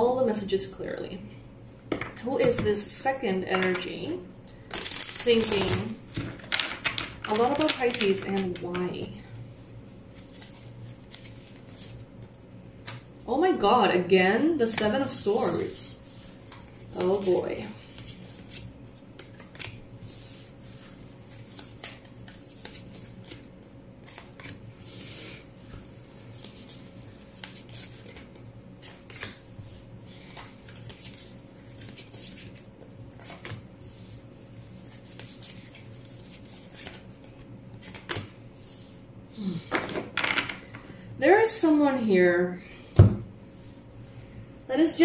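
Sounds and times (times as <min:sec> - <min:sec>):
steady low hum: 0:00.0 - 0:45.0
cards rustling and clicking: 0:04.6 - 0:09.1, 0:16.4 - 0:19.8, 0:21.3 - 0:24.6, 0:25.6 - 0:29.4, 0:30.2 - 0:33.6, 0:34.8 - 0:38.4.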